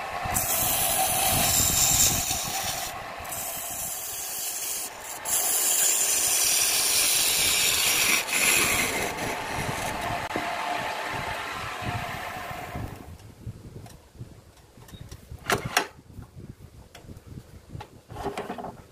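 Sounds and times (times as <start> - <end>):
wood lathe running: 0.0 - 13.1
gouge scraping wood shavings: 0.4 - 10.3.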